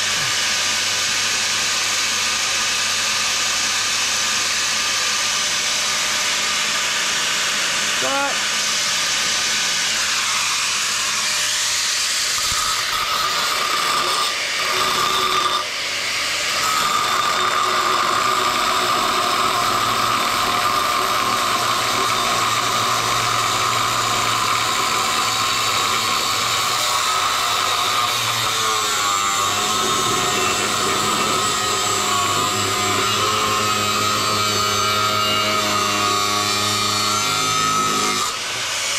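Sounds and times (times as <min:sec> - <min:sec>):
angle grinder cutting steel: 0:08.4 - 0:38.9.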